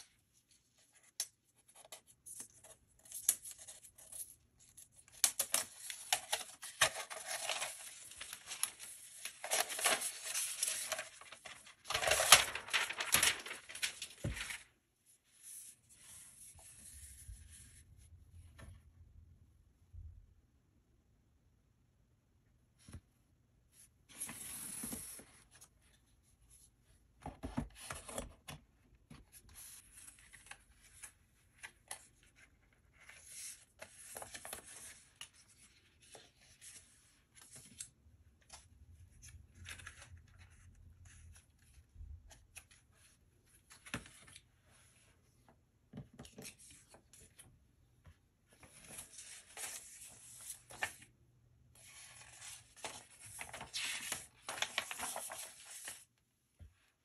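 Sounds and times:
paper rustling and sliding: 5.5 - 14.8, 48.5 - 51.1, 51.8 - 56.1.

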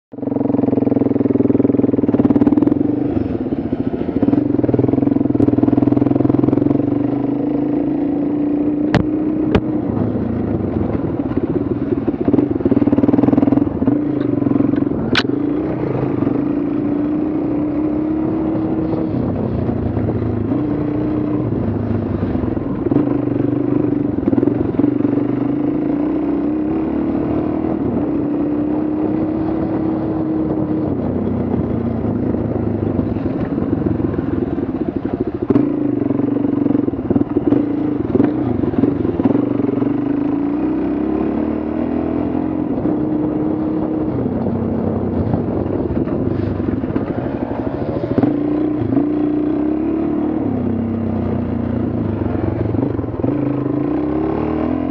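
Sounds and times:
motorcycle engine running: 0.1 - 54.9
sharp clicks: 14.7 - 15.3.

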